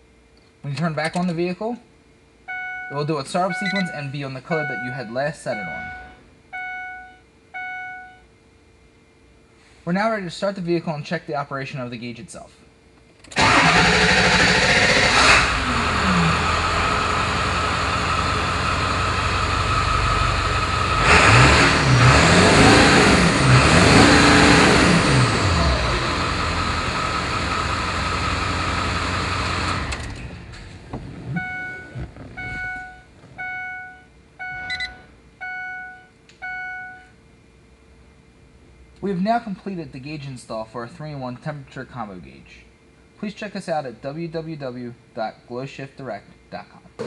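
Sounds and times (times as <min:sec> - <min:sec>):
short electronic chime: 0:04.6 - 0:08.2
diesel engine running and revving: 0:13.4 - 0:33.7.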